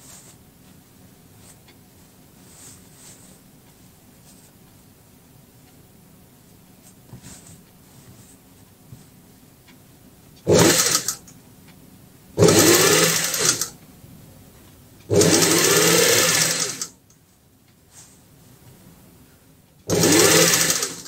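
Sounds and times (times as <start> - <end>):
sewing machine stitching: 10.5 - 11.2, 12.4 - 13.8, 15.1 - 16.9, 19.9 - 21.0.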